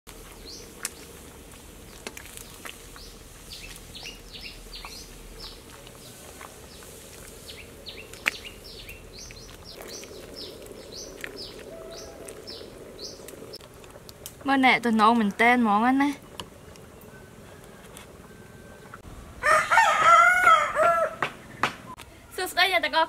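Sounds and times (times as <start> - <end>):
small birds chirping: 0.2 - 13.7.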